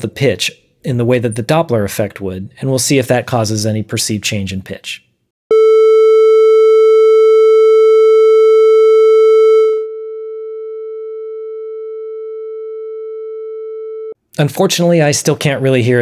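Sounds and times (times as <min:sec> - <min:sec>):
synthesized test tone: 0:05.5 - 0:14.2.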